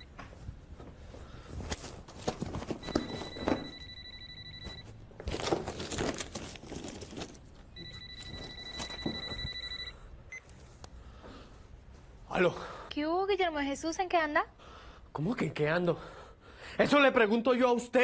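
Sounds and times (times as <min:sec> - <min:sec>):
papers and books rummaged: 0:01.5 - 0:03.7, 0:05.2 - 0:09.4
telephone ringing: 0:02.8 - 0:05.0, 0:07.7 - 0:10.4.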